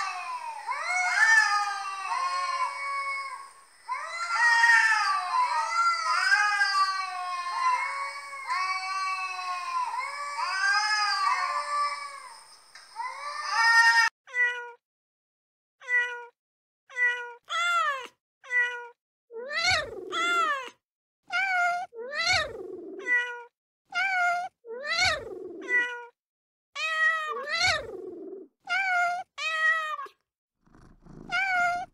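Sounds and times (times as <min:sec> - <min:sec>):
kitten meowing: 0:00.0 - 0:12.2, 0:16.9 - 0:20.7, 0:21.3 - 0:26.1, 0:26.8 - 0:28.1, 0:31.2 - 0:31.9.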